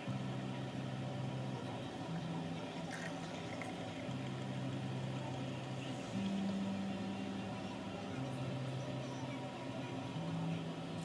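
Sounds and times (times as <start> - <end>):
wine fizzing in a glass: 2.9 - 4.0.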